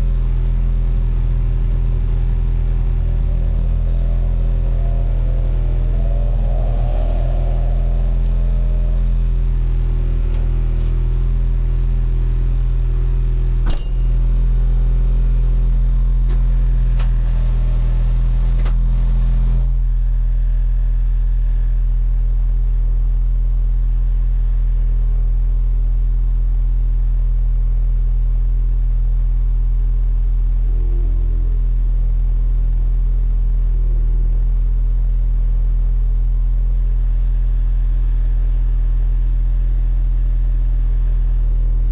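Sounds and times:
race car engine idling: 0.0s - 23.3s.

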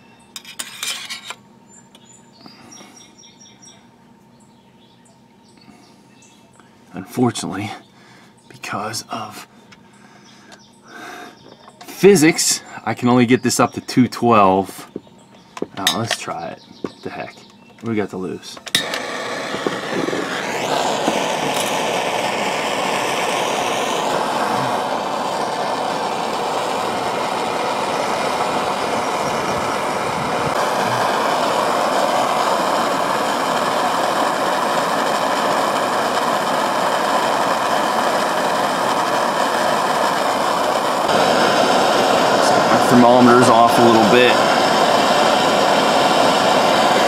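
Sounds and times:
gas flame rushing: 17.9s - 47.0s.

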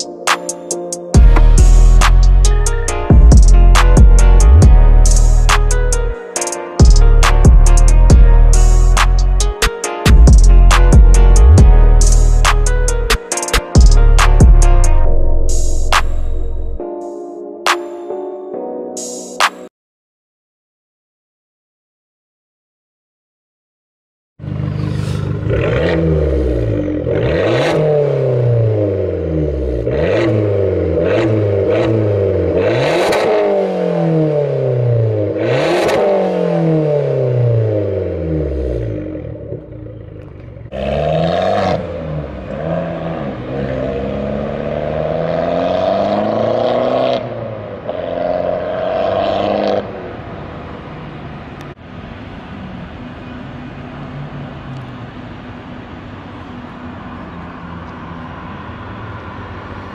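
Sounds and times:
car engine revving: 24.4s - 51.9s.

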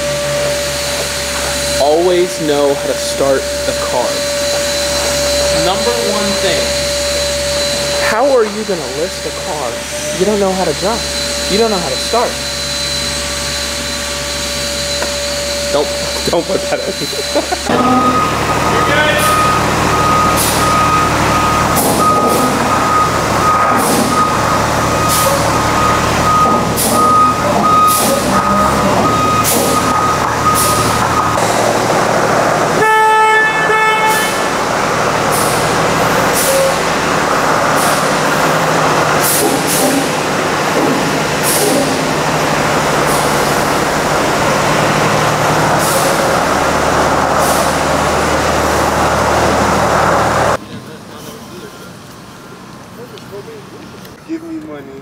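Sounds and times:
reversing alarm beeping: 0.0s - 50.6s
truck engine running: 0.0s - 54.2s
short horn-like tone: 32.8s - 34.5s.

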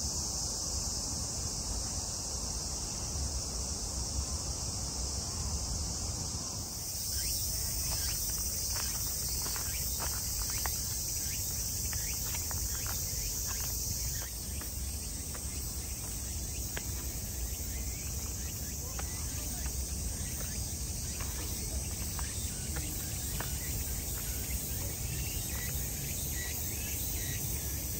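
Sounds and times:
cicadas shrilling: 0.0s - 27.9s
footsteps on stone steps: 6.8s - 25.9s.

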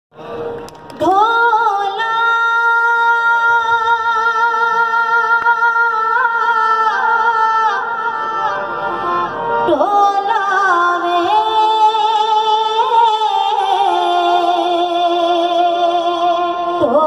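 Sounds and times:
woman singing folk song: 1.0s - 7.9s.

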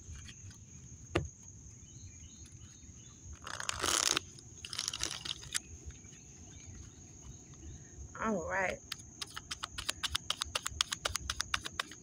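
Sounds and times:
high insect buzz: 0.0s - 12.0s
cards riffling: 3.4s - 5.6s, 9.0s - 12.0s.

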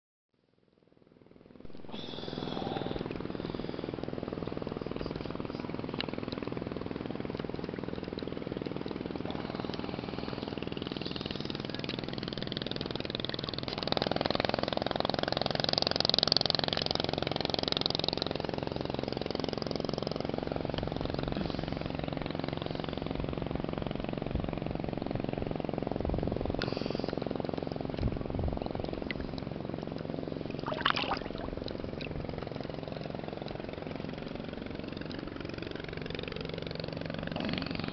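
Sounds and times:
motorboat engine humming: 1.1s - 37.9s
water splashing: 30.4s - 32.4s.

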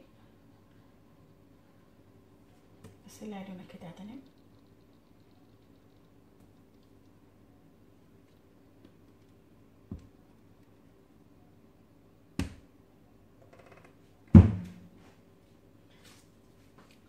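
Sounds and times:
knocks on kitchen counter: 14.3s - 14.8s.

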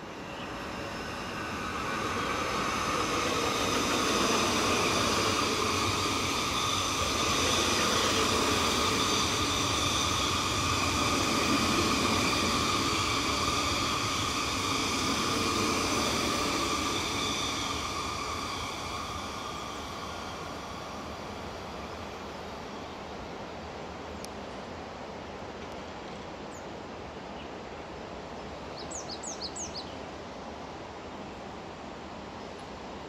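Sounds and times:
train wheels rumbling on rails: 0.0s - 24.8s
high steady train whine: 0.0s - 33.0s.

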